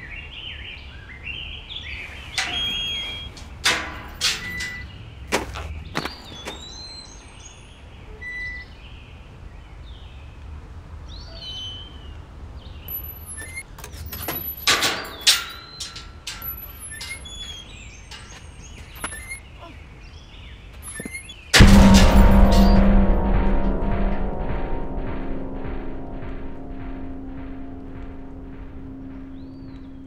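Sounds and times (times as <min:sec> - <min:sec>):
small birds chirping: 0:00.0 - 0:10.5, 0:11.1 - 0:21.6
iron gate bars clanking: 0:02.1 - 0:05.2, 0:12.9 - 0:19.4, 0:20.8 - 0:30.0.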